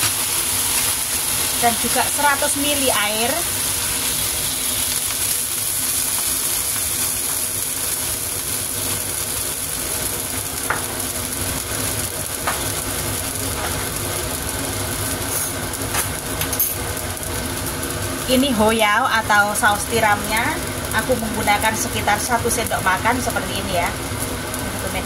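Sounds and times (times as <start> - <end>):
water sizzling in a wok: 0.0 - 25.0.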